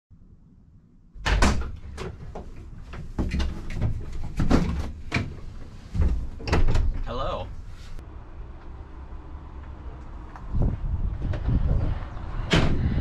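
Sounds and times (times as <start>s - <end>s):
van doors clicking and rattling: 1.2s - 7.2s, 12.4s - 13.0s.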